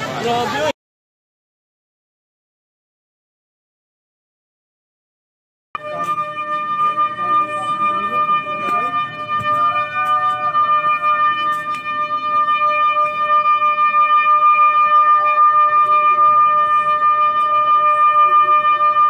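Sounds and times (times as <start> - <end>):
high-pitched electronic alarm tone: 5.8 - 19.0.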